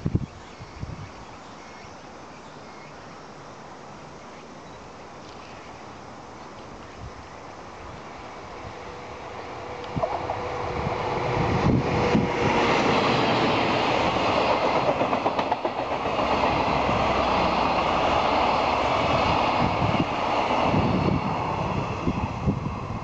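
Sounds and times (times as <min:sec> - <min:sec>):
train wheels rumbling on rails: 0:07.6 - 0:23.0
wheels clattering over rail joints: 0:12.8 - 0:17.6.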